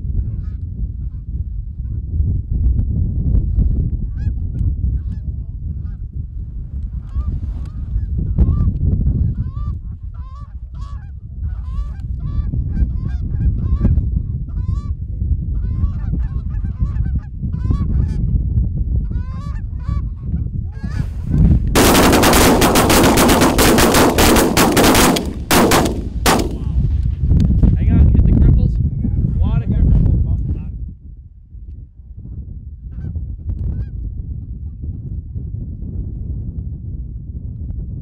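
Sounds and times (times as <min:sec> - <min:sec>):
wind rumble on microphone: 0:00.0 - 0:38.0
shotgun fire: 0:21.8 - 0:26.8.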